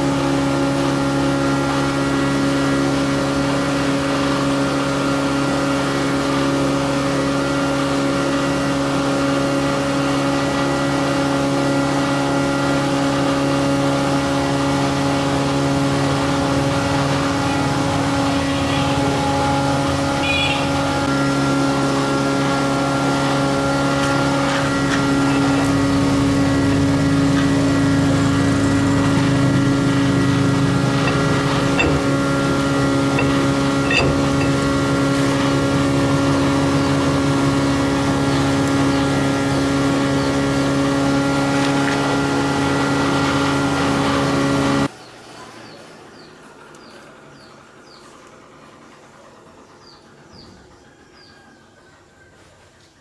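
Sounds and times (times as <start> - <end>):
engine humming: 0.0 - 52.8
metal parts clicking: 33.1 - 34.7.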